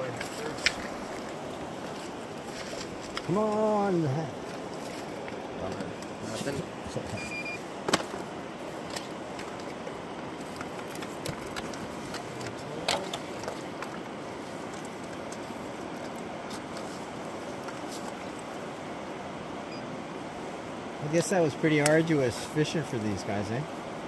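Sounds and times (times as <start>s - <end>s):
shallow river water rushing: 0.0s - 24.0s
short electronic beep: 7.2s - 7.6s.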